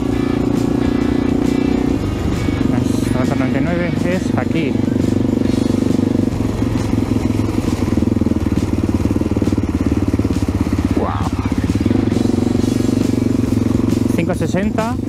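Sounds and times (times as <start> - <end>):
motorcycle engine running off-road: 0.0 - 15.0.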